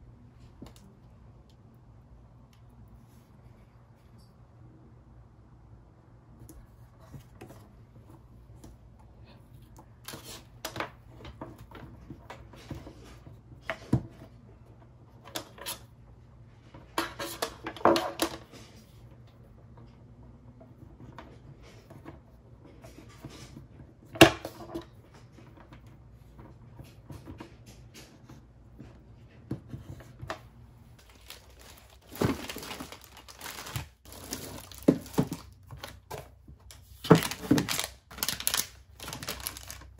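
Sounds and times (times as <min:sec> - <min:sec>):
plastic packaging crinkling: 0:31.0 - 0:39.9.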